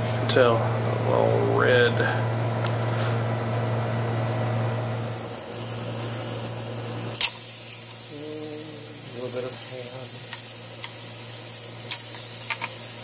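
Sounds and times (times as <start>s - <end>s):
ham sizzling in a frying pan: 5.1s - 13.0s.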